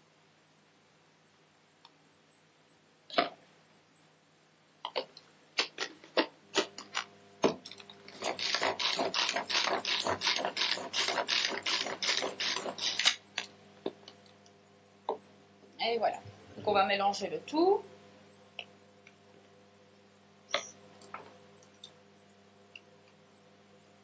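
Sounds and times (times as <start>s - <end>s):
pull-cord ratcheting whir: 6.6s - 13.5s.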